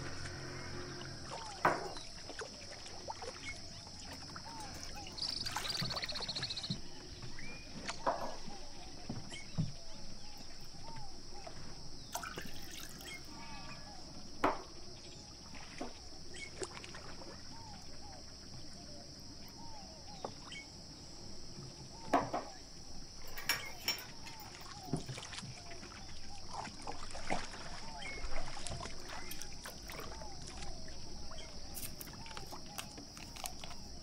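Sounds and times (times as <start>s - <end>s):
cup clinking against glass: 23.3s - 24.2s.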